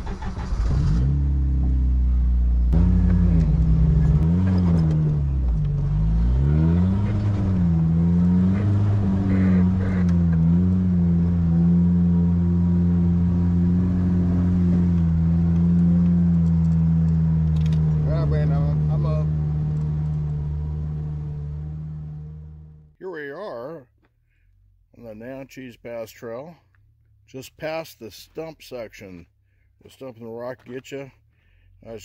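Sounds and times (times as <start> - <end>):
car engine revving: 0.0 - 23.0.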